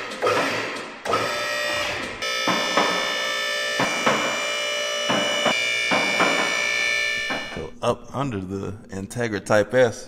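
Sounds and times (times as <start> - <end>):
hydraulic pump motor whining: 0.0 - 7.7
knocks with ringing: 2.2 - 7.6.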